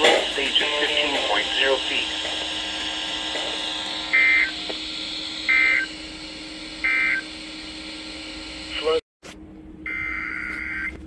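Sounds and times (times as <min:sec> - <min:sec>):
faint steady hum: 0:00.0 - 0:11.0
warbling digital tone bursts: 0:01.1 - 0:07.4.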